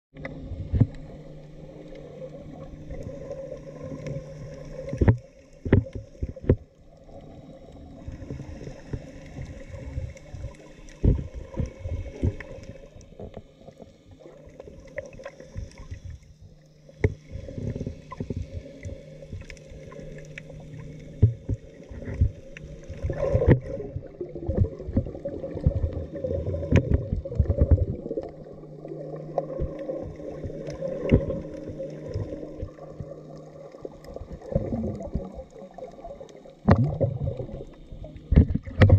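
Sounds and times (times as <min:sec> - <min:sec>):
underwater knocks and thumps: 0:00.2 - 0:01.0, 0:04.9 - 0:06.7, 0:10.5 - 0:12.5, 0:21.1 - 0:28.3, 0:29.4 - 0:33.2, 0:34.1 - 0:35.4, 0:36.6 - 0:38.9
muffled underwater hum: 0:00.2 - 0:38.9.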